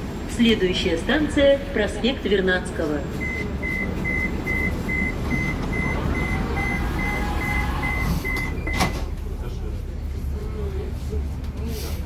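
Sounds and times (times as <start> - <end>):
train low hum: 0.0 - 12.0
high door warning beeps: 3.2 - 9.0.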